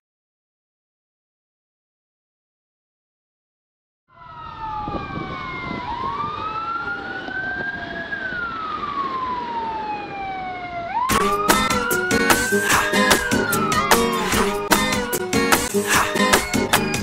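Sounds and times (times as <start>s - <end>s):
police siren wailing: 4.1s - 17.0s
music with drum beat: 11.1s - 17.0s.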